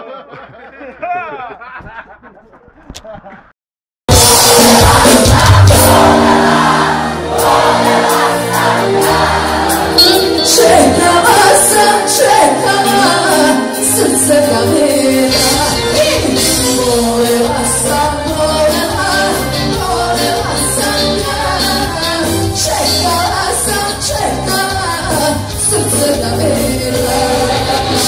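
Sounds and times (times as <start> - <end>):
live pop band playing: 4.1 - 28.0
woman singing: 10.0 - 28.0.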